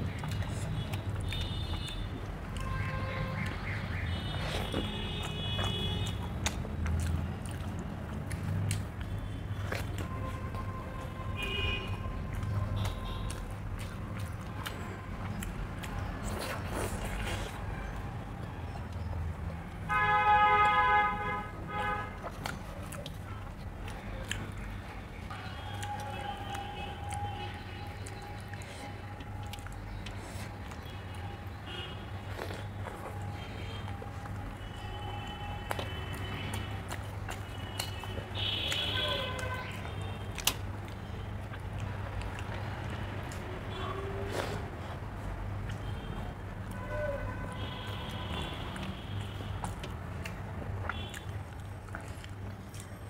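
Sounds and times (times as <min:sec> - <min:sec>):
chewing: 0:00.0 - 0:19.9, 0:21.8 - 0:46.9, 0:47.9 - 0:53.0
vehicle horn honking: 0:19.9 - 0:22.1.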